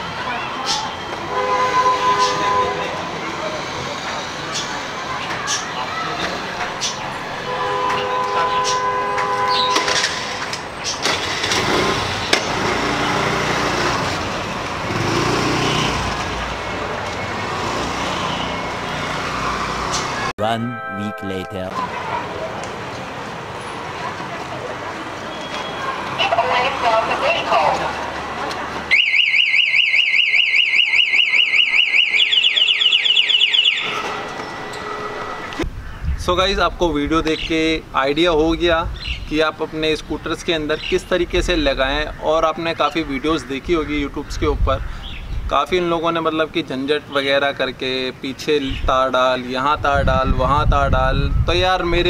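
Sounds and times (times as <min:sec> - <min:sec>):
street noise: 0:00.0 - 0:52.0
scooter alarm siren warbling: 0:28.9 - 0:35.5.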